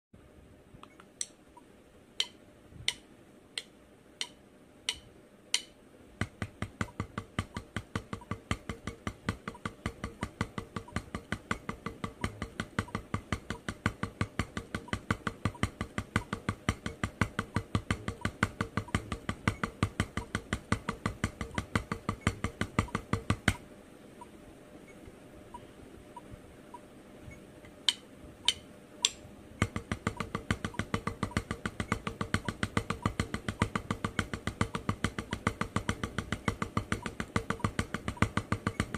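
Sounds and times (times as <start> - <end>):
metronome clicking: 2.2 - 3.0, 3.6 - 5.7, 27.9 - 29.2
drumsticks on practice pad: 2.2 - 23.6.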